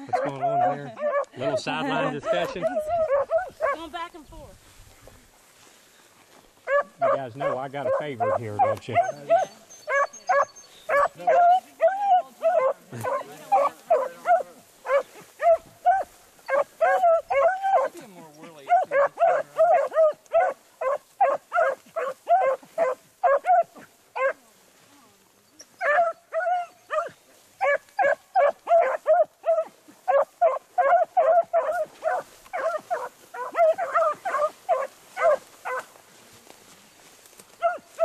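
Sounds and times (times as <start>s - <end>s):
hounds baying: 0.0s - 4.0s, 6.6s - 24.4s, 25.6s - 36.0s, 37.6s - 38.0s.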